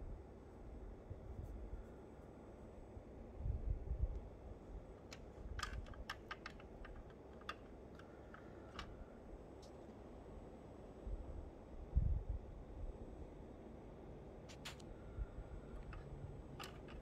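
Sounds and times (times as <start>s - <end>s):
fingers clicking on toy car: 5.0s - 9.0s, 15.8s - 17.0s.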